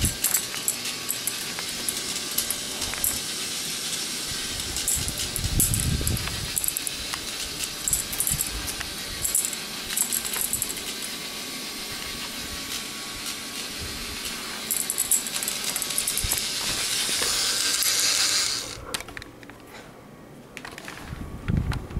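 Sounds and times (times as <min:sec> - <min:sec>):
balls clattering through plastic track: 0:00.0 - 0:11.2, 0:14.6 - 0:19.3
steady hiss: 0:00.0 - 0:18.8.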